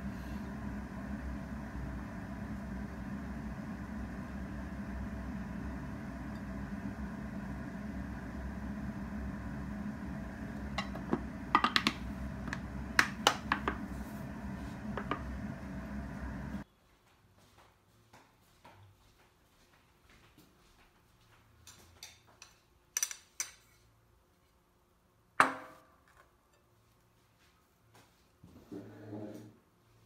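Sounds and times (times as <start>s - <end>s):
low hum: 0.0s - 16.6s.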